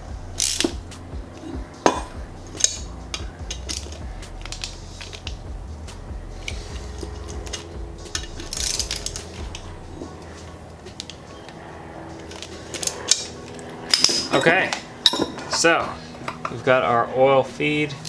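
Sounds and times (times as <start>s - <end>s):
socket ratchet clicking: 0.4s - 1.4s, 2.5s - 5.4s, 6.4s - 9.7s.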